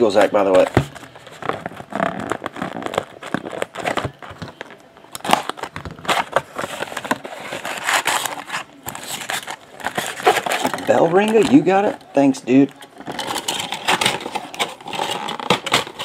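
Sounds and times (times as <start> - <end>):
foil packs crinkling: 0.0 - 16.0
cardboard box tearing: 5.2 - 11.0.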